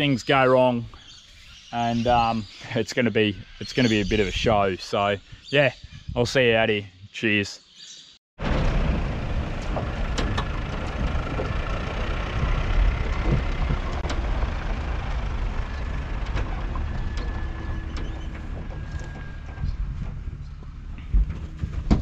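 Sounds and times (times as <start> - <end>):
engine rumbling: 8.4 - 22.0.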